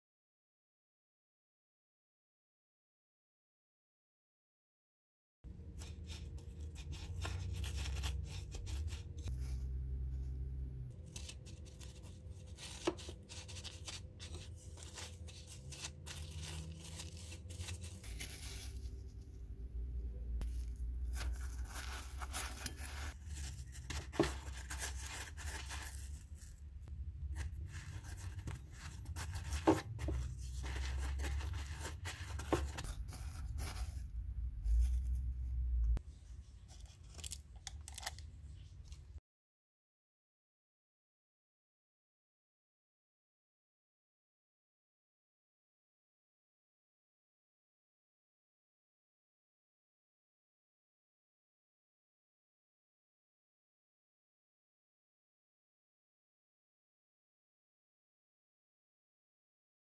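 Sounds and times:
low steady hum: 5.5 - 39.2.

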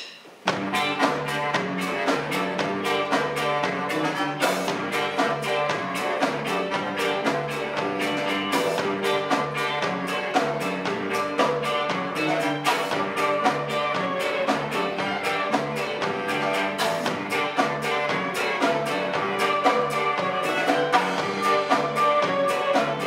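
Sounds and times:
folk ensemble playing lively tune: 0.4 - 23.0.

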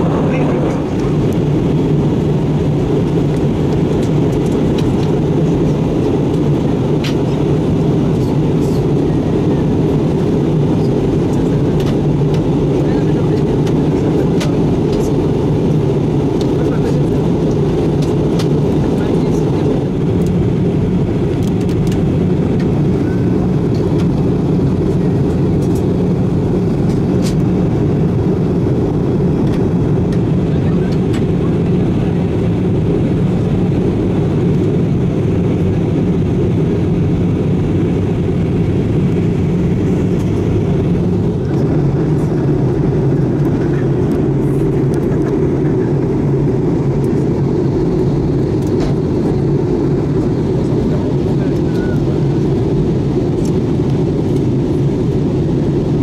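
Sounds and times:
airliner cabin rumble: 0.0 - 56.0.

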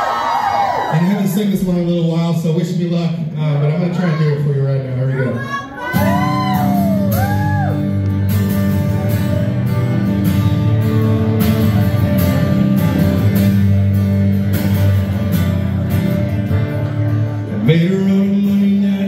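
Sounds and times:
acoustic guitar strumming: 5.9 - 19.0.

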